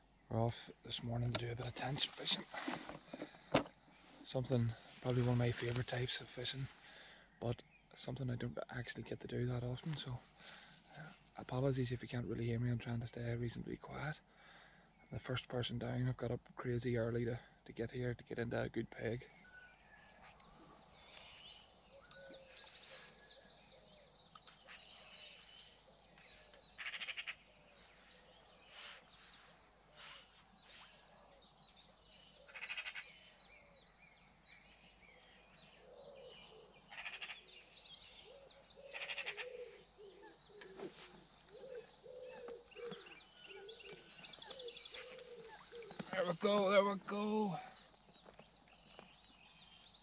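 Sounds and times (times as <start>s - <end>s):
low repeated bird calls: 0.0s - 50.0s
small birds chirping: 0.0s - 50.0s
loud rattling bird trills: 26.8s - 27.4s, 32.5s - 33.2s, 36.9s - 37.5s, 38.8s - 39.6s.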